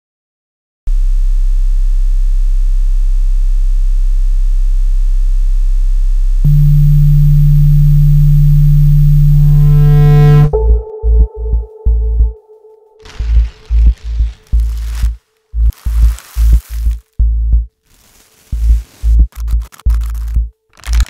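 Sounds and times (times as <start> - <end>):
middle synthesizer tone: 1.0 - 13.0
synthesizer drone: 2.6 - 17.7
higher synthesizer tone: 6.4 - 13.0.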